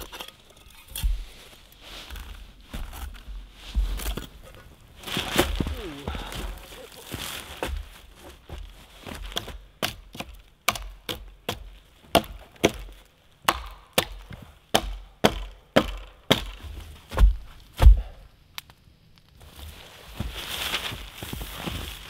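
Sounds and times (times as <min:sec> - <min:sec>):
dry wood cracking: 0:03.9 - 0:16.7
heavy deep thuds: 0:17.1 - 0:18.2.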